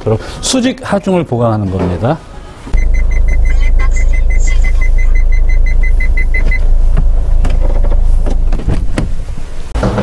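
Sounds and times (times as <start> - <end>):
rapid high beeping: 2.8 - 7.4.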